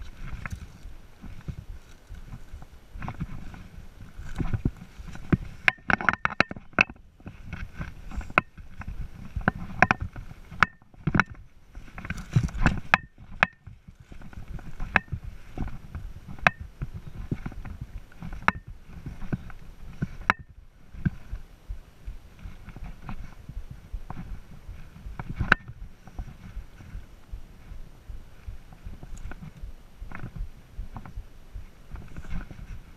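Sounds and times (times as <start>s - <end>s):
footsteps on rocky ground: 0.0s - 5.9s, 6.6s - 32.9s
low rumbling and rustling: 0.0s - 32.9s
sharp clicks and knocks: 4.2s - 21.4s, 22.0s - 27.4s.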